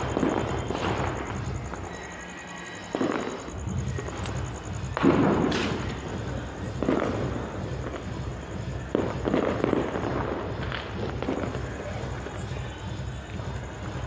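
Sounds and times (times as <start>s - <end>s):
fireworks bangs with rolling echo: 0.0s - 14.0s.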